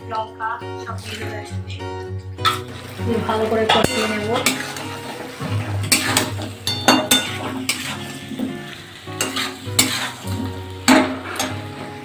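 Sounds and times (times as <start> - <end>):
masala sizzling: 0.7 - 12.0
metal spatula scraping pan: 2.4 - 12.0.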